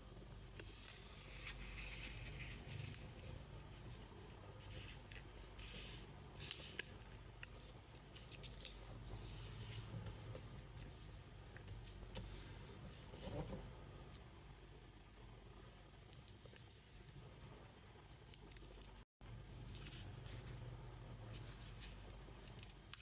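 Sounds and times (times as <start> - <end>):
paper rustling and crinkling: 4.6 - 12.4.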